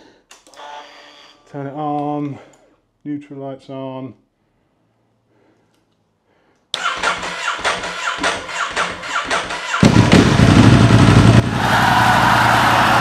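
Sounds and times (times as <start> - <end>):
motorcycle engine cranking on starter: 6.8 - 10.9
motorcycle engine running loudly: 8.2 - 13.0.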